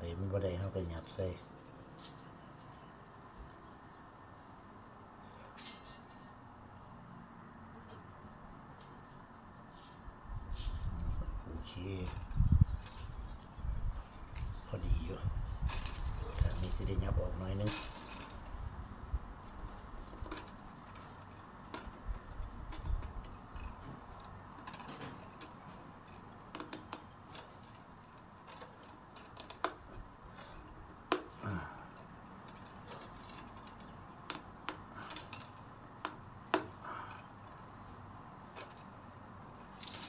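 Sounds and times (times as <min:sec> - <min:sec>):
bamboo strips clicking: 0:19.4 - 0:37.8, 0:39.7 - 0:40.0.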